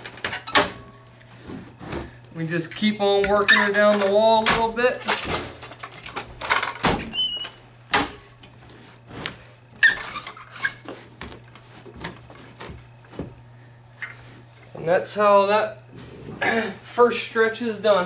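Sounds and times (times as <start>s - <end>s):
carpet stretcher squeak: 7.1s - 7.6s, 8.7s - 11.1s.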